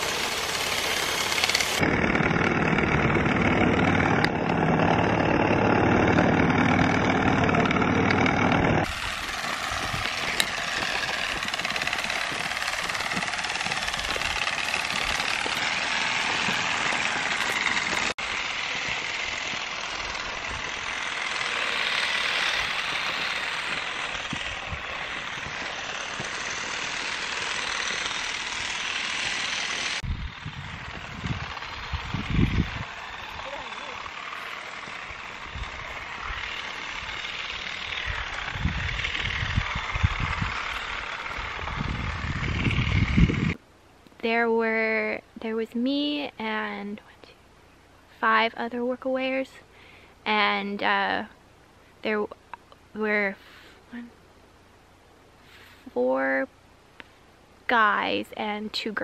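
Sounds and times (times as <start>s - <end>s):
motorized olive rake rattling: 0.0s - 43.6s.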